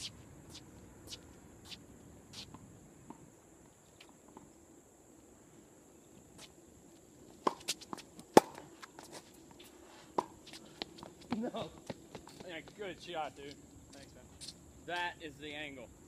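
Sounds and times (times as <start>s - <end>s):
shoe scuffs on court: 0.0s - 2.6s, 6.4s - 11.4s
high insect drone: 0.0s - 16.0s.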